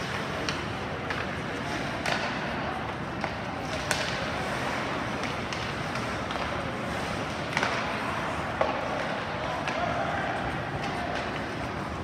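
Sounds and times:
hockey sticks and puck clacking: 0.0 - 12.0
skates hissing on ice: 3.6 - 9.0.

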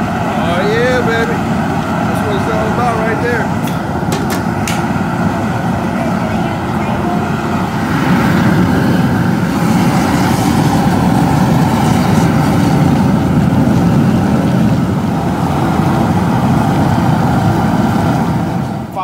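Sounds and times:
propane burner rumble and hiss: 0.0 - 19.0.

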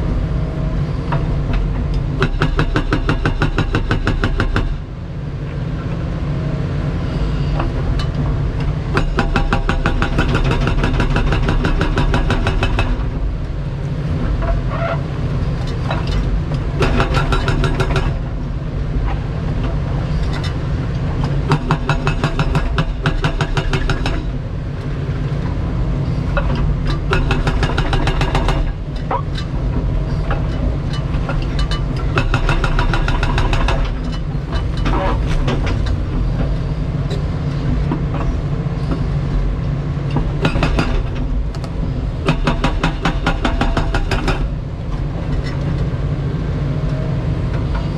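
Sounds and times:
diesel engine drone: 0.0 - 47.9
hydraulic breaker pounding concrete: 2.1 - 4.8, 8.9 - 13.2, 16.7 - 18.3, 21.3 - 24.4, 26.4 - 28.9, 31.1 - 36.3, 40.2 - 41.4, 42.2 - 44.6.

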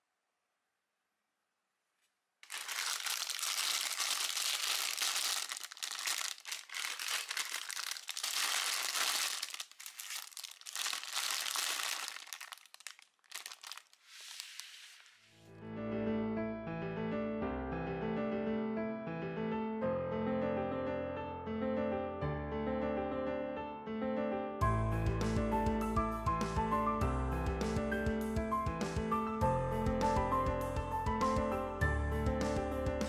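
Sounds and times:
plastic bricks shifting: 2.4 - 14.8
plastic bags crinkling: 2.4 - 15.4
piano music: 15.6 - 33.0.

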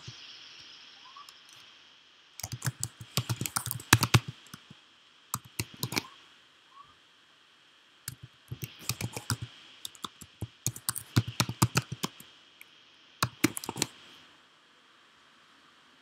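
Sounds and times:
keyboard key clicks: 2.4 - 4.6, 5.4 - 6.1, 8.1 - 12.2, 13.2 - 13.9.

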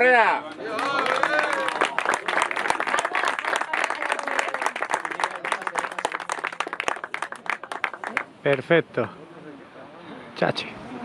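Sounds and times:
people applauding: 0.4 - 8.7.

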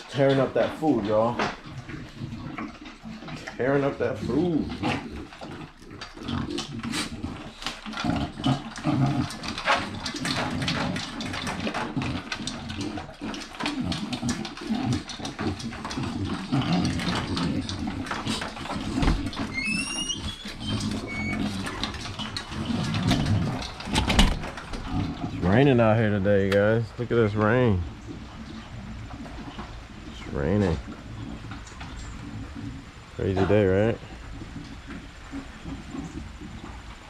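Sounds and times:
dogs chomping and snuffling: 0.0 - 37.0
high squeak: 19.5 - 21.6.

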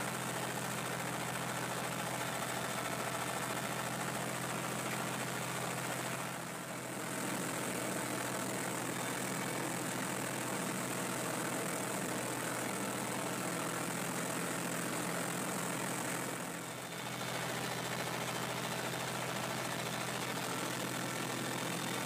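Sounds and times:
rotary mower cutting: 0.2 - 22.0
tractor diesel engine running: 15.5 - 22.0.

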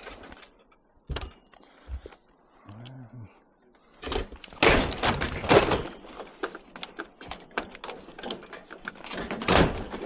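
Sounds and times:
scrap metal clicks and knocks: 4.0 - 10.0.

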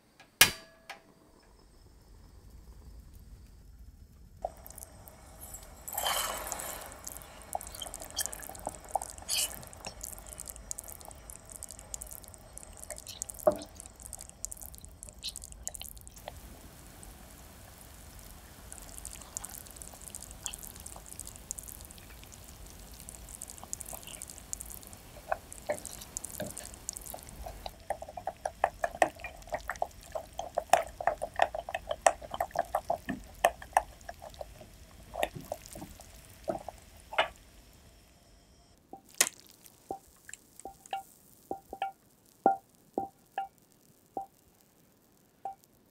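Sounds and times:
thick mixture boiling and bubbling: 1.8 - 45.9
spatula stirring: 4.4 - 16.4, 18.6 - 37.4.

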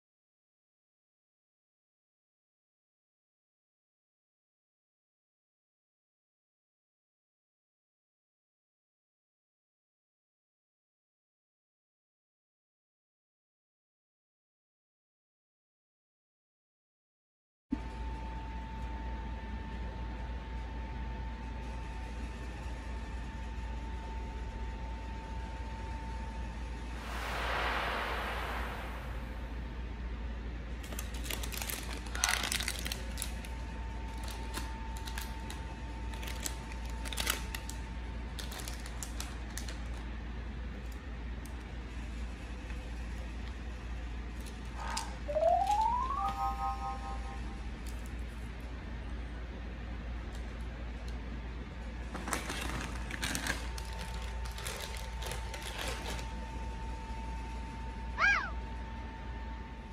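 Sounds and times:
steady low hum: 26.6 - 30.7
plastic wrappers crinkling: 31.2 - 33.3, 36.1 - 37.6, 52.2 - 56.2
faint steady high tone: 45.3 - 47.7.

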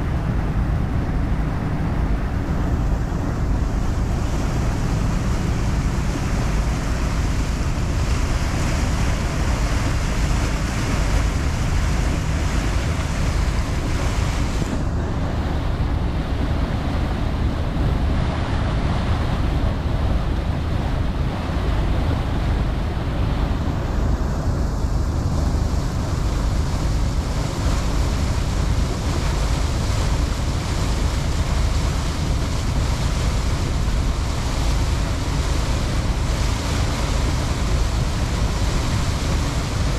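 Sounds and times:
wind and water rushing: 0.0 - 39.9
wind buffeting microphone: 0.0 - 39.9.

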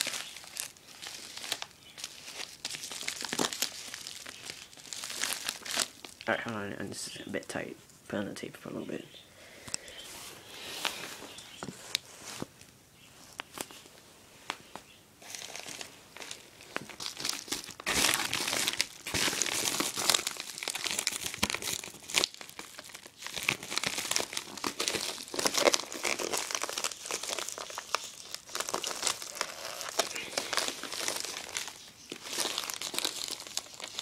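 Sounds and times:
plastic mailer crinkling: 0.0 - 6.3, 15.2 - 34.0.

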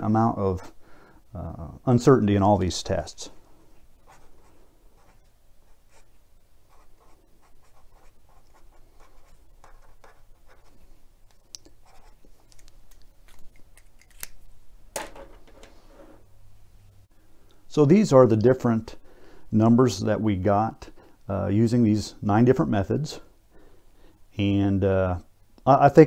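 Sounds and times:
marker scratching on paper: 4.0 - 10.9, 11.7 - 12.6.

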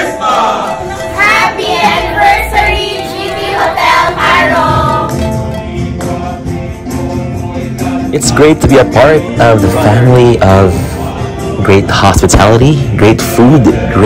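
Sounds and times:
instrumental accompaniment: 0.0 - 12.6
people singing: 0.0 - 14.0.

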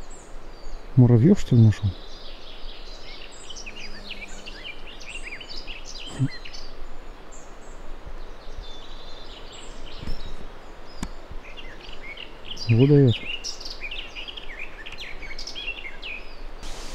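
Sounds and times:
outdoor background noise: 0.0 - 16.9
small birds chirping: 0.0 - 16.9.

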